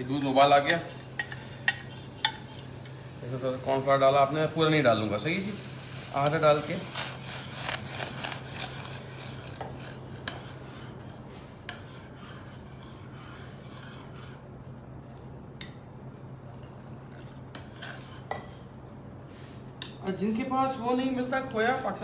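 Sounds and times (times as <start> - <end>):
steady low hum: 0.0 - 22.0
metal spoon scraping saucepan: 0.1 - 2.7, 6.2 - 14.4, 17.5 - 18.6.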